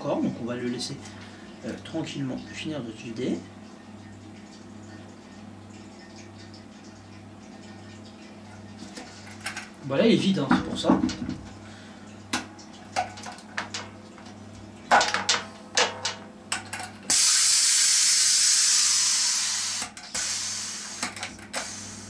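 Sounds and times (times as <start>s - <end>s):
gas hissing from keg: 17.1s - 22.0s.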